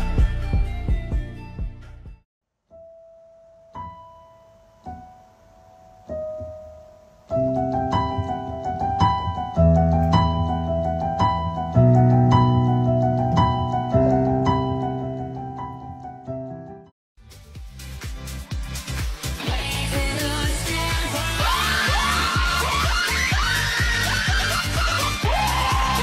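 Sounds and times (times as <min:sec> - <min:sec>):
piano music: 0:02.7 - 0:16.9.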